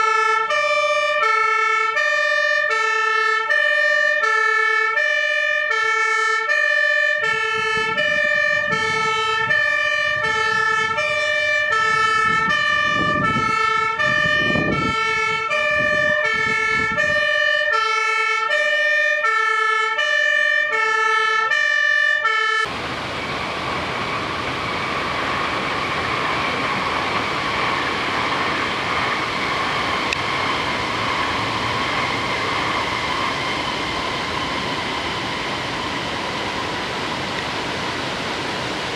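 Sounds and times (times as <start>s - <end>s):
two-tone fire engine siren: 0.0s - 38.9s
truck engine rumbling: 6.7s - 18.1s, 22.6s - 38.9s
fire hose spraying water: 22.7s - 38.9s.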